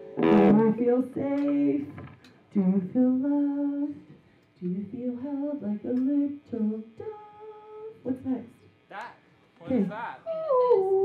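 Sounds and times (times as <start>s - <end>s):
woman humming: 4.6s - 8.5s, 10.2s - 11.0s.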